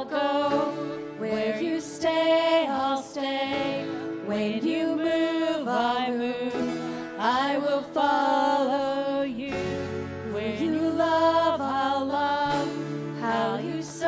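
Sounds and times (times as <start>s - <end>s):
woman singing into microphone: 0.0s - 14.0s
band with electric and bass guitars: 9.5s - 14.0s.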